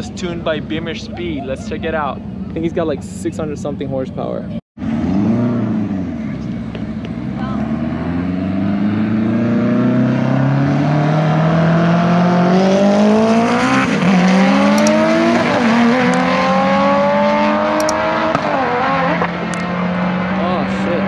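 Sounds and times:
cars accelerating hard: 4.8s - 21.0s.

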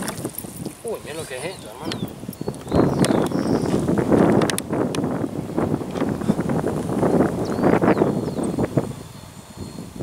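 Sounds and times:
water splashing and dripping: 0.0s - 1.0s
wind buffeting microphone: 0.0s - 10.0s.

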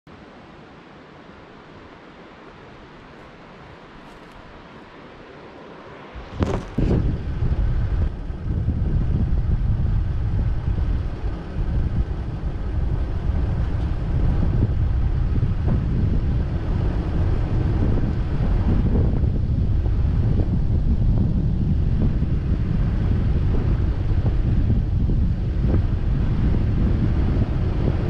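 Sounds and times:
wind buffeting microphone: 6.1s - 28.0s
vehicle rumbling on dirt track: 6.2s - 28.0s
camera handling knocks: 6.4s - 6.8s.

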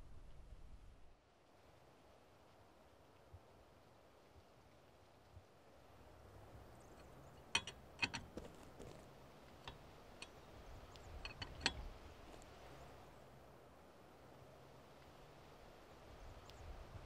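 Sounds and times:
metallic clicks of lug nuts: 6.9s - 12.6s.

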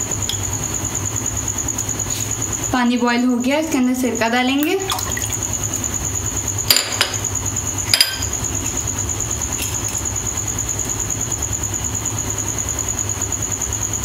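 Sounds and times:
steady low hum: 0.0s - 14.0s
dish clinking on hard surface: 7.9s - 8.3s.

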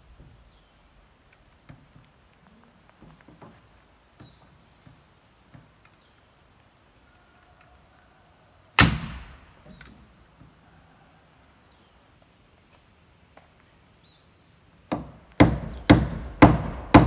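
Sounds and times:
nail gun firing: 8.8s - 9.4s, 15.0s - 17.0s.

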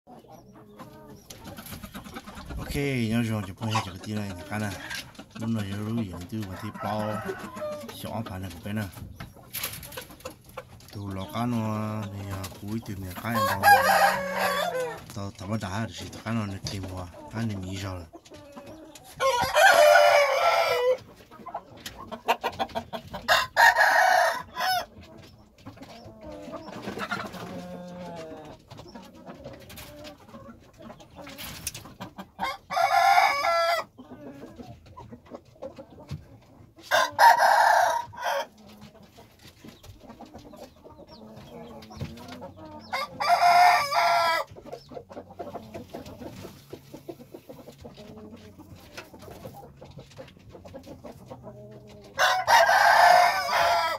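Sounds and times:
clucking: 0.1s - 53.9s
rooster crowing: 13.4s - 15.0s, 19.2s - 21.0s, 36.9s - 38.5s, 52.2s - 53.9s.

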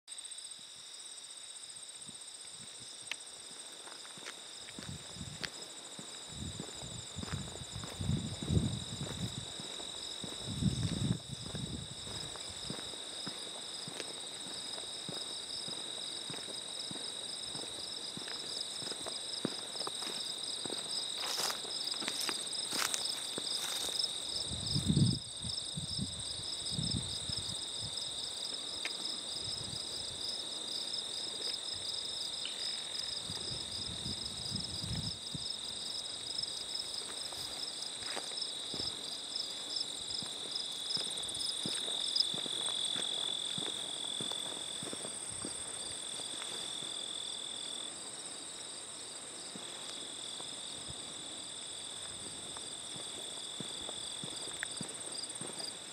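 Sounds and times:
insects trilling: 0.1s - 55.9s
footsteps on gravel: 3.4s - 24.4s, 36.3s - 47.0s, 51.8s - 55.9s.

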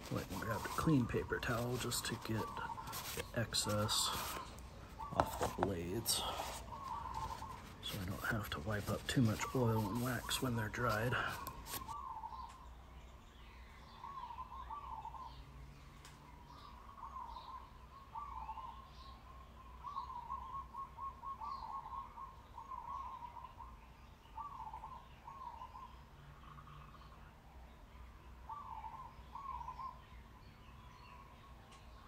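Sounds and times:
bird warbling: 0.0s - 12.5s.

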